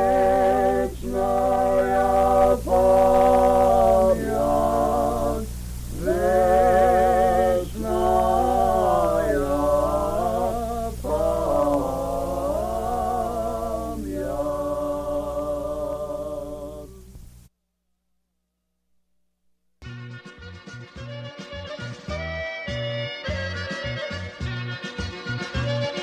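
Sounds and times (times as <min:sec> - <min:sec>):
unaccompanied sung chant: 0:00.0 - 0:17.1.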